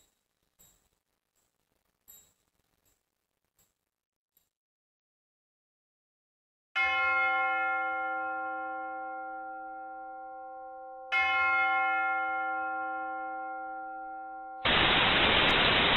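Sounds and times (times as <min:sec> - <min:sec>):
loud static hiss: 0:14.7 - 0:15.9.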